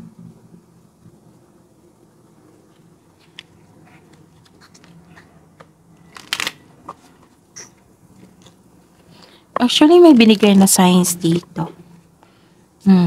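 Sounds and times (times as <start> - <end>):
paper cards being shuffled: 2.8 - 7.4.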